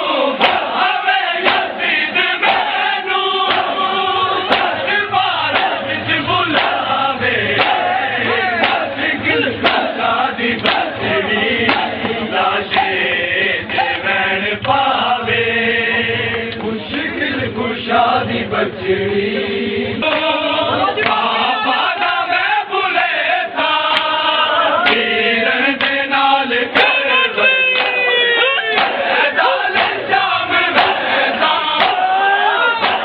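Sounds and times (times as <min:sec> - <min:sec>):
crowd of men chanting: 0:00.0 - 0:33.0
hands slapping bare chests: 0:00.4 - 0:00.8, 0:03.5 - 0:03.8, 0:04.5 - 0:04.8, 0:05.5 - 0:05.8, 0:06.5 - 0:06.9, 0:07.6 - 0:07.9, 0:08.6 - 0:08.9, 0:09.6 - 0:11.0, 0:11.7 - 0:12.9, 0:27.8 - 0:29.0, 0:29.7 - 0:30.0, 0:31.8 - 0:32.1, 0:32.8 - 0:33.0.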